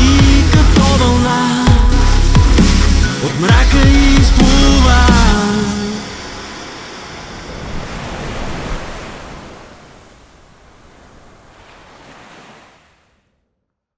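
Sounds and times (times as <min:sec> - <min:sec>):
sea waves washing in: 0:04.4 - 0:13.3.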